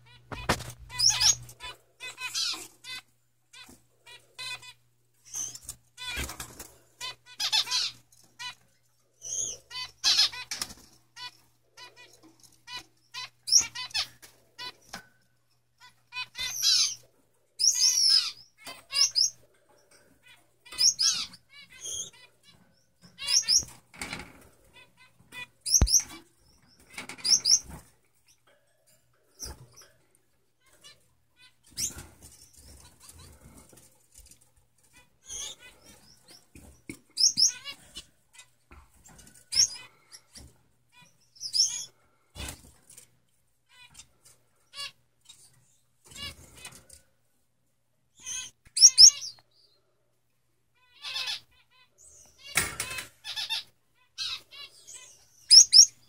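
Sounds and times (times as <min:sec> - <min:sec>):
finches chirping and trilling: 0:00.1 - 0:08.6, 0:09.2 - 0:15.0, 0:15.8 - 0:28.5, 0:29.3 - 0:42.7, 0:43.7 - 0:47.0, 0:48.1 - 0:49.8, 0:50.8 - 0:56.0.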